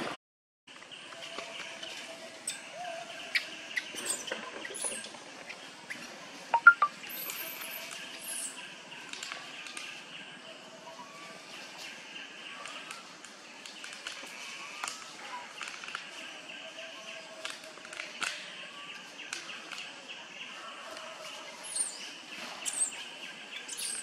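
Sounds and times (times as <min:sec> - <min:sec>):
thin high chirps: 0:06.5 - 0:07.3.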